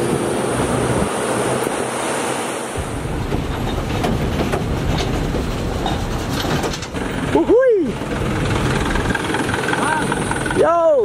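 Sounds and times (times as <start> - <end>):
wind rushing over microphone: 0.0 - 6.9
vehicle road noise: 0.0 - 11.0.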